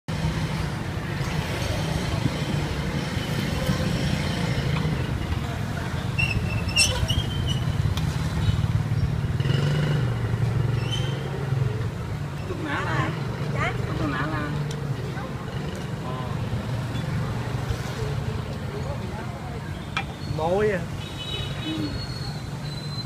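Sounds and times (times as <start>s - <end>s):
traffic engines humming: 0.1s - 23.0s
brief high squeal: 6.2s - 7.8s.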